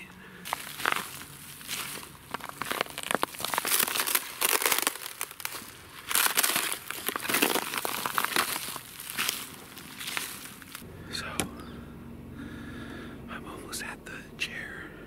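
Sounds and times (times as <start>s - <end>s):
footsteps crunching on leaves and snow: 0.3s - 10.9s.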